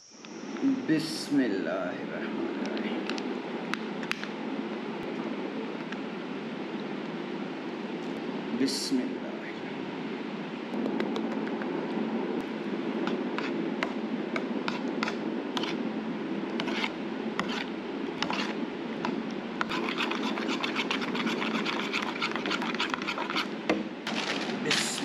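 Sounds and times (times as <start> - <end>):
spoon scraping ceramic bowl: 16.6 - 18.6, 19.6 - 23.5
plastic sheet crinkling: 24.1 - 25.0.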